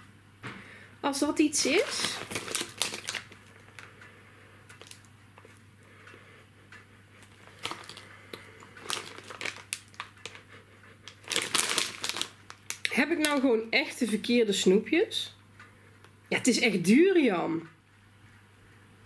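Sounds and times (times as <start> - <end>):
plastic bag crinkling: 1.4 - 4.0, 4.7 - 5.6, 7.2 - 10.5, 11.1 - 13.5.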